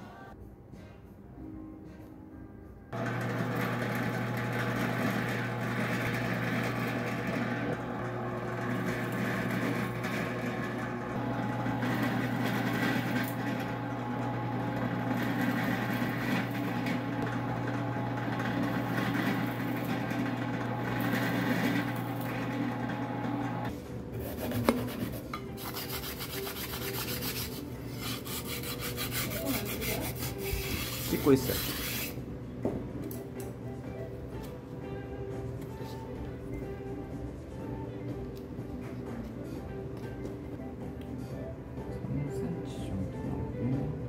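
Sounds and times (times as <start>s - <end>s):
drill press boring wood: 3.0s - 23.7s.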